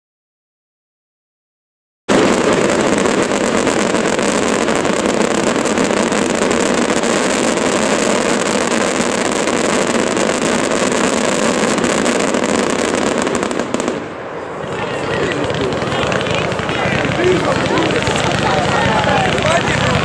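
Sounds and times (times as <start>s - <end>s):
fireworks barrage: 2.1s - 20.0s.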